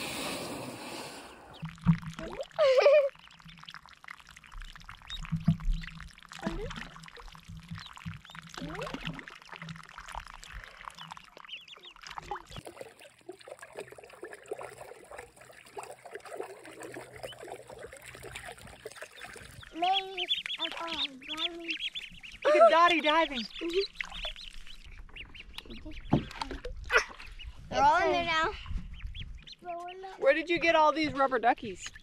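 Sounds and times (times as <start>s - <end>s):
water splashing: 0.0s - 28.6s
duckling peeps: 7.7s - 9.1s, 10.4s - 12.6s, 17.1s - 27.6s, 28.8s - 30.1s.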